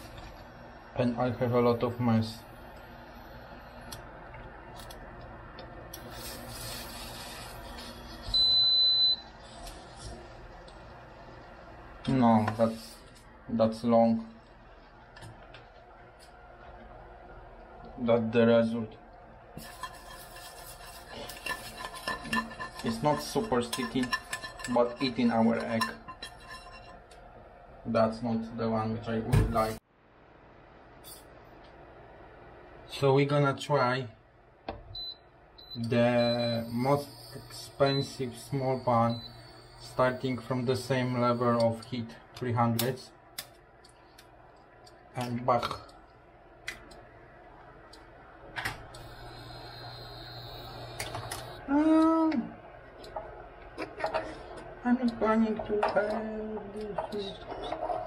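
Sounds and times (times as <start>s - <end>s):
faint hum and hiss: 0.0s - 58.0s
high steady beep: 8.2s - 9.3s, 35.0s - 41.8s
spatula scraping frying pan: 19.6s - 27.1s.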